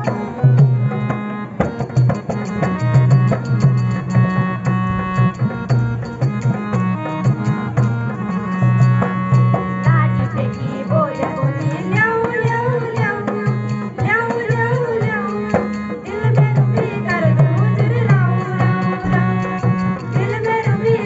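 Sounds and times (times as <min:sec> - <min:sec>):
folk dance song: 0:00.0 - 0:21.0
person singing: 0:09.9 - 0:21.0
steady drum beat: 0:16.4 - 0:21.0.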